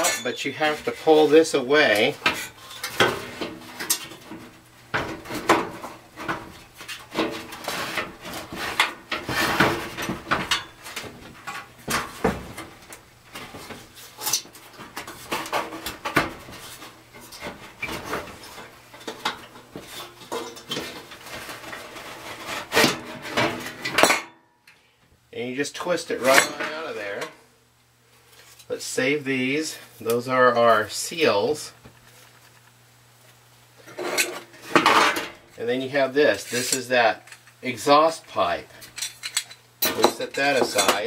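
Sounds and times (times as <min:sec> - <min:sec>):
metal parts clinking and rattling: 0:38.8 - 0:41.0.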